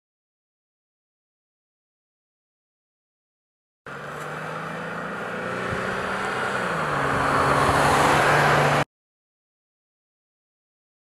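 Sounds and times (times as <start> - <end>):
truck engine hum passing: 3.9 - 8.9.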